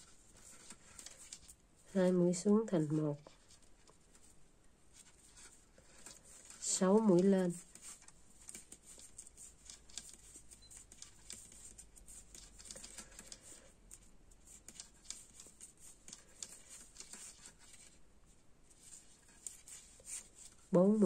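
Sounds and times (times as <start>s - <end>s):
yarn rubbing: 0.0s - 18.0s, 18.7s - 21.0s
knitting needles clicking: 6.0s - 17.6s.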